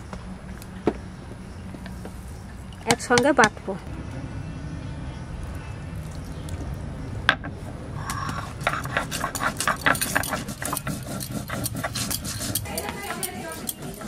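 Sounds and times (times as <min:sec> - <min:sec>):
stone grinding seeds on slab: 0:08.6 - 0:14.0.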